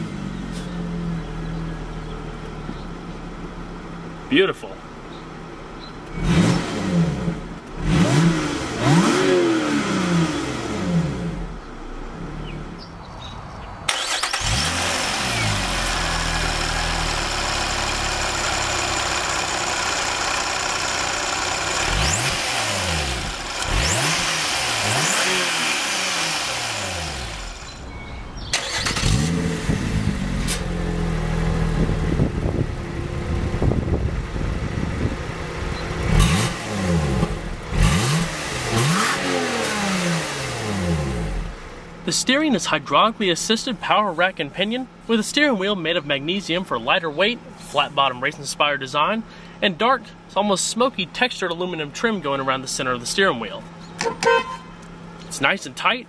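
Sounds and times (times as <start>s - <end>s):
car engine revving: 6.0s - 42.0s.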